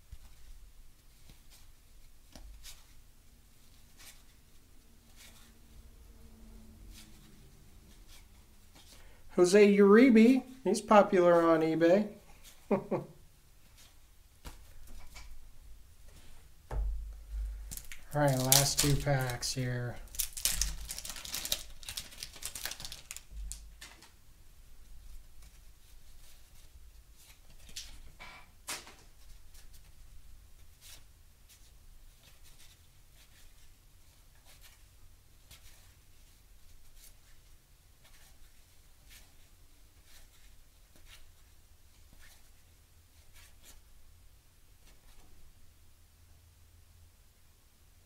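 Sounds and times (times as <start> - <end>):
cards being flipped through: 17.6 - 24.2
wax paper wrapper crinkling: 17.6 - 24.2.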